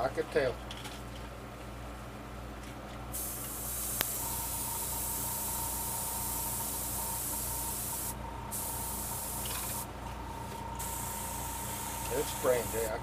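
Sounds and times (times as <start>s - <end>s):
airbrush spraying hiss: 3.1s - 9.9s, 10.8s - 13.0s
thin steady whistle: 3.8s - 9.5s.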